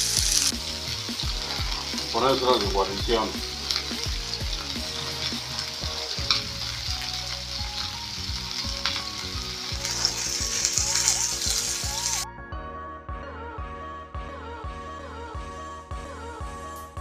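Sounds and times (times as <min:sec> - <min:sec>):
fries sizzling in hot oil: 0:00.0 - 0:12.2.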